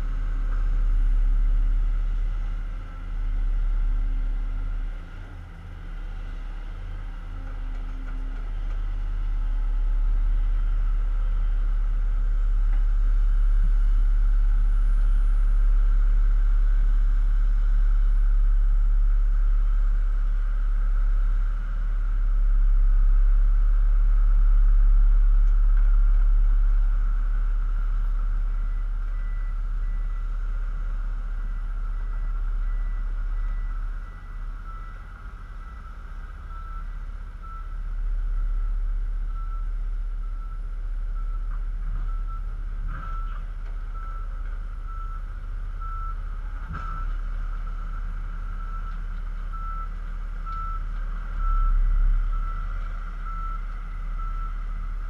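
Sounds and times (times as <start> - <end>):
diesel engines rumbling: 0.0 - 55.0
truck reversing alarm beeping: 26.8 - 55.0.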